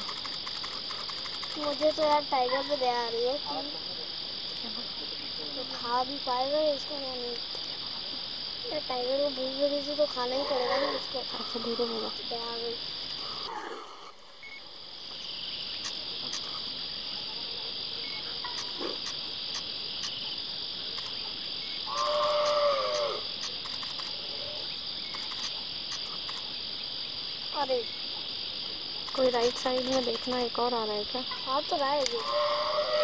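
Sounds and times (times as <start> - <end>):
faint ticks: 0.0 - 2.2, 18.4 - 20.2, 21.9 - 24.2, 25.0 - 26.4, 32.0 - 32.4
insect chorus: 0.0 - 33.0
drawn-out falling cry: 21.9 - 23.4, 32.2 - 33.0.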